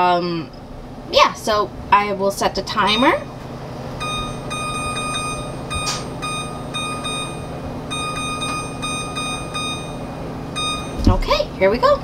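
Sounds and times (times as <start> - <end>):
oven control panel beeping: 3.9 - 11.4.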